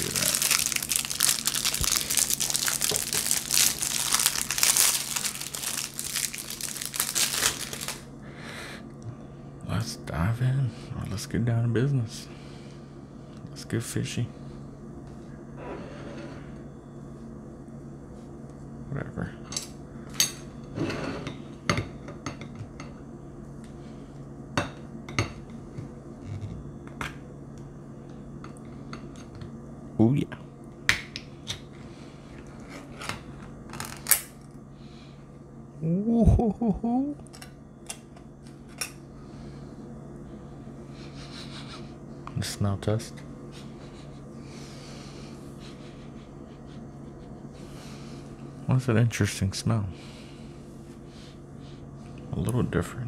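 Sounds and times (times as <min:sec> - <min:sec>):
plastic shrink-wrap crinkling: 0:00.0 - 0:08.1.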